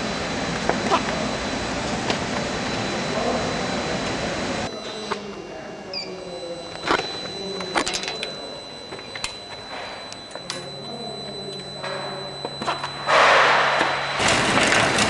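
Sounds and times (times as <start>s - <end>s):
machine high whine: 0.0s - 15.0s.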